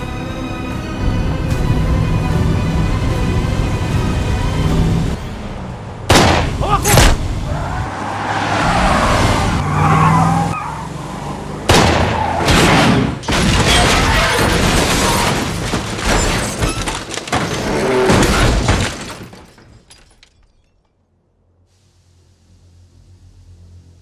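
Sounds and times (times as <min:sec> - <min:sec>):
vehicle running: 0:00.0 - 0:13.4, 0:22.2 - 0:24.0.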